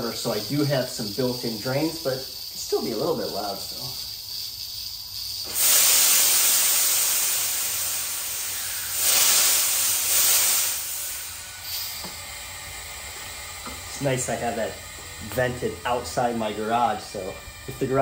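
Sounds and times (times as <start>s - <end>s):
compressed air hissing: 0.0s - 18.0s.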